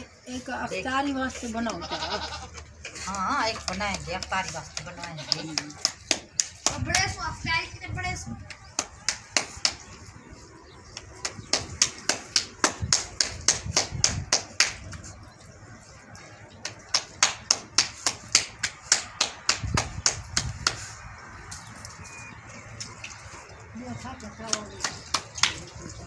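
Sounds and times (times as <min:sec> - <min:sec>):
hands slapping dough: 0:03.6 - 0:07.2, 0:08.4 - 0:10.0, 0:10.9 - 0:15.0, 0:16.6 - 0:21.0.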